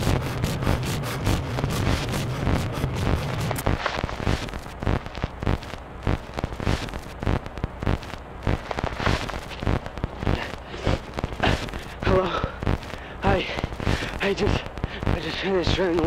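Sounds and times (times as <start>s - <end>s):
static hiss: 0.0s - 16.0s
videotape crackling and popping: 0.0s - 16.0s
sharp clicks: 3.0s - 12.0s, 12.6s - 13.0s.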